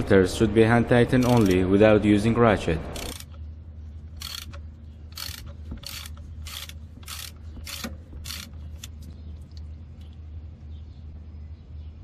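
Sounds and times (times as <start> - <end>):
ratchet clicking: 1.2 - 1.6, 3.0 - 3.4, 4.1 - 9.1.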